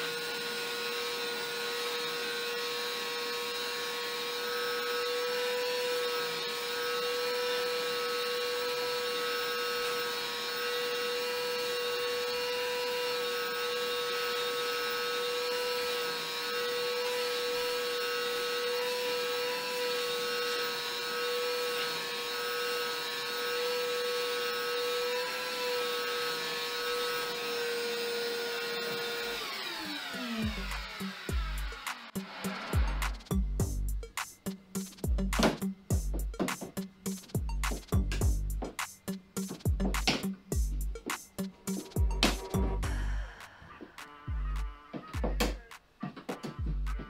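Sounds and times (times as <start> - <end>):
shop vacuum whining: 0.0 - 32.9
motor winding down: 0.0 - 33.2.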